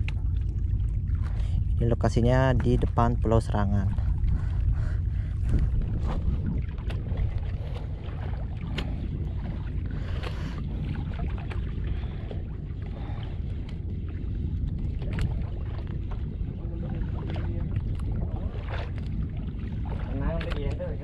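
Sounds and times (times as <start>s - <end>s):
water slapping against boat hull: 0.0s - 21.0s
wind buffeting microphone: 0.0s - 21.0s.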